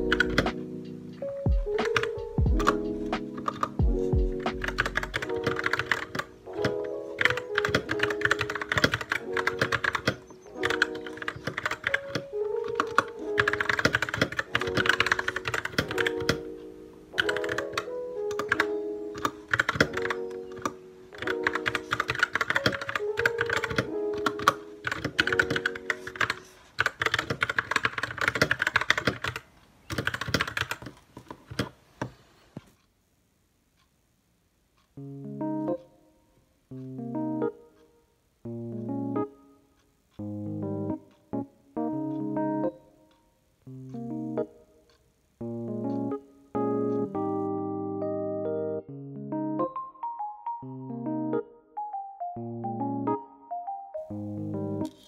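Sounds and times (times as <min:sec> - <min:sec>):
mechanical keyboard typing: 0:00.0 - 0:00.8, 0:01.7 - 0:31.8
background music: 0:00.0 - 0:26.6, 0:35.0 - 0:55.0.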